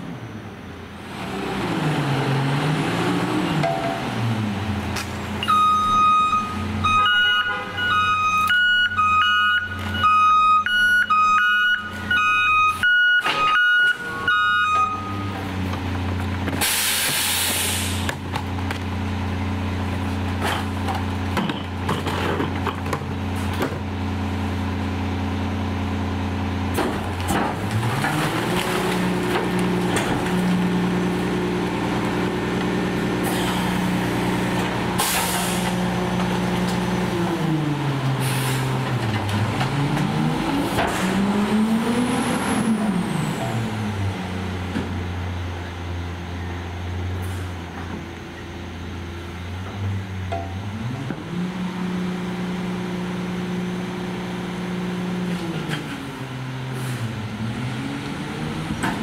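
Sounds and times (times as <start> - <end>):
truck engine revving: 1.0 - 59.0
truck backup alarm beeping: 5.4 - 15.5
air brake hiss: 16.6 - 18.1, 35.0 - 35.8, 38.2 - 38.7.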